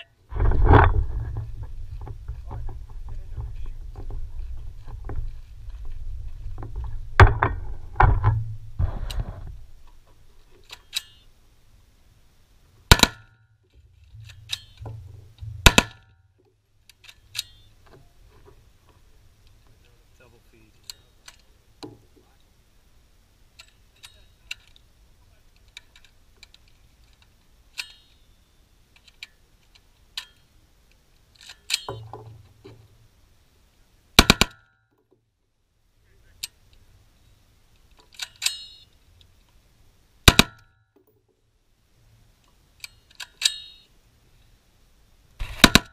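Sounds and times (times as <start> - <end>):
metallic ring: 10.8 - 11.3, 12.9 - 16.4, 17.3 - 17.8, 27.8 - 28.6, 38.4 - 38.9, 43.4 - 43.9
rifle shots: 12.9 - 13.4, 15.5 - 16.1, 34.2 - 34.6, 45.4 - 45.9.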